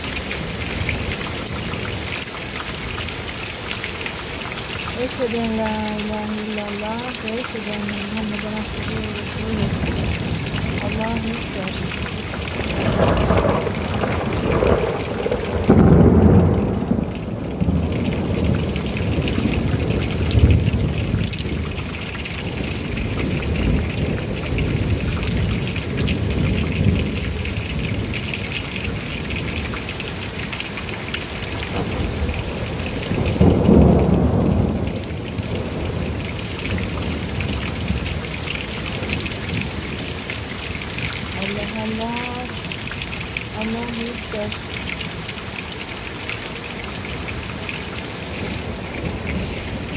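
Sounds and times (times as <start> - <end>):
heavy rain pouring: 0.0 - 49.9
thunder rumbling: 4.9 - 29.8, 31.5 - 45.3, 47.0 - 49.9
sharp thunder crack: 12.7 - 21.2, 33.4 - 34.9.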